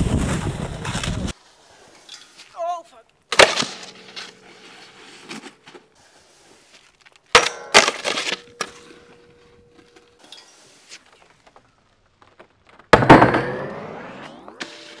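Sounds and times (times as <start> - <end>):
snowboard scraping along rail: 0.0 - 2.5, 3.6 - 7.1, 8.2 - 11.5
snowboard hitting metal handrail: 7.3 - 10.2, 12.9 - 13.9.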